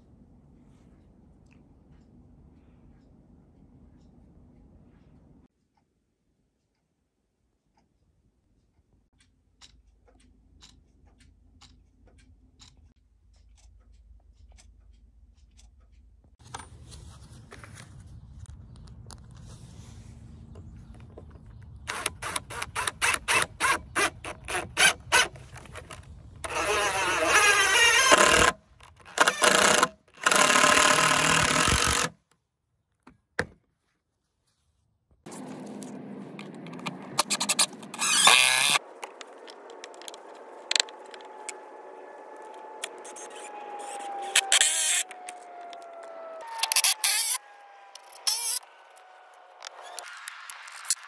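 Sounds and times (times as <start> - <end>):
wall clock ticking: 5.5 - 16.4
impact driver driving screws: 21.9 - 32.1, 37.2 - 38.8, 46.5 - 47.4.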